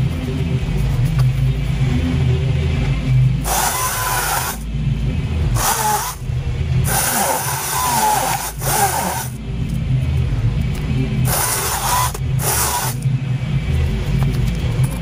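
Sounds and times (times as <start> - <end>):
battery chainsaw cutting brush: 3.5 - 4.6, 6.9 - 9.4, 11.3 - 13.0.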